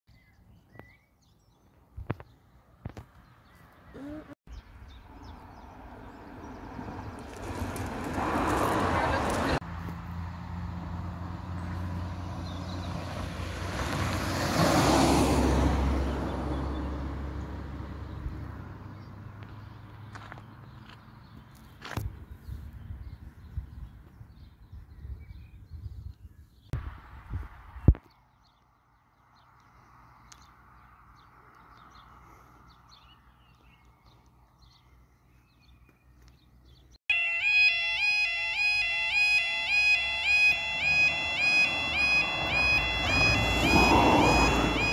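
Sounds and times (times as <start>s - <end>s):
road vehicle passing: 2.5s - 21.9s, 28.8s - 35.4s, 36.5s - 44.9s
faint birds chirping: 27.8s - 37.0s.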